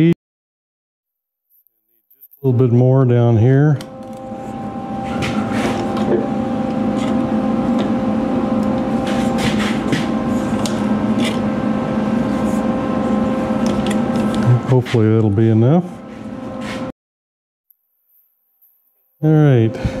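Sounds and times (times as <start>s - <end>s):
metal shrinking machine humming: 2.3s - 16.9s, 19.2s - 20.0s.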